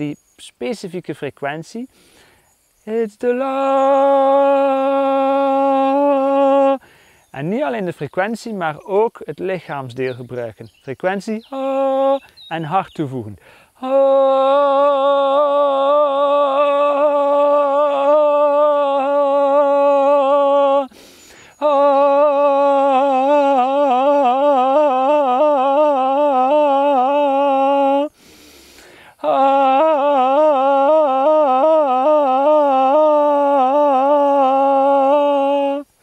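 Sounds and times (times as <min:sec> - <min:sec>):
singer breathing: 0:01.9 - 0:02.6, 0:06.8 - 0:07.3, 0:13.4 - 0:13.8, 0:20.9 - 0:21.6, 0:28.1 - 0:29.2
man singing held notes: 0:02.8 - 0:06.8, 0:07.4 - 0:28.2, 0:28.8 - 0:36.0.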